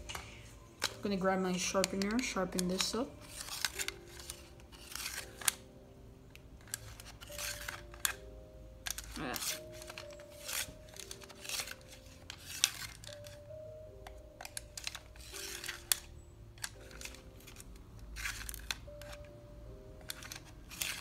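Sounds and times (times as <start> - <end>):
background music: 0.0 - 21.0
pencil sharpener scraping: 8.9 - 13.4.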